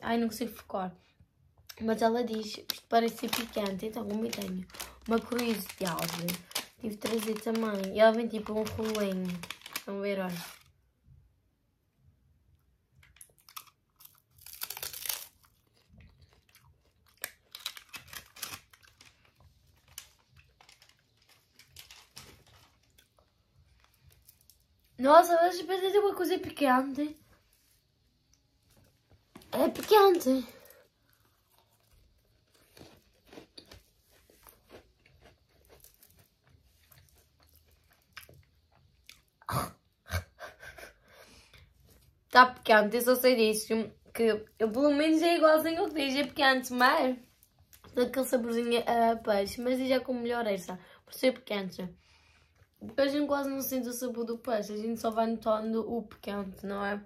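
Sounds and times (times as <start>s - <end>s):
crunching crispy snack: 2.2s - 10.8s, 13.0s - 25.0s, 28.8s - 39.4s.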